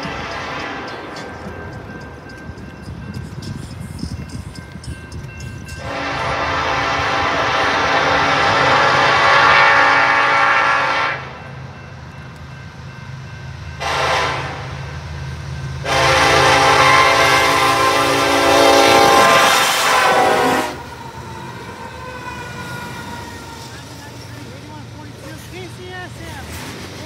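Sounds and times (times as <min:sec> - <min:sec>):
locomotive engine rumble: 0:00.0 - 0:27.0
locomotive horn blasts: 0:05.8 - 0:11.4, 0:13.8 - 0:14.8, 0:15.8 - 0:23.8.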